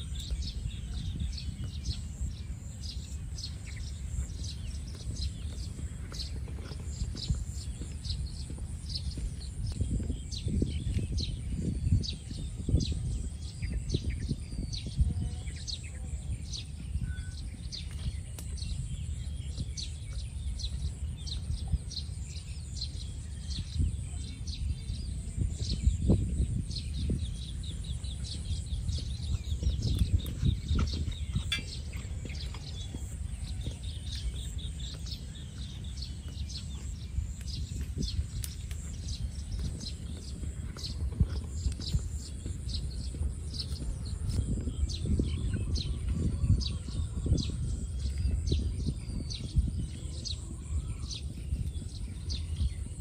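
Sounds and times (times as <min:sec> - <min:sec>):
birds chirping: 0:00.0 - 0:53.0
low uneven rumble: 0:00.0 - 0:53.0.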